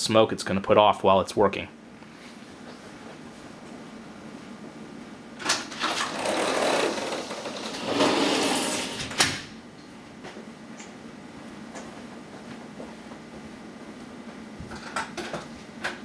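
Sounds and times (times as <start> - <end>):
sliding door rattling along track: 5.4 - 9.4.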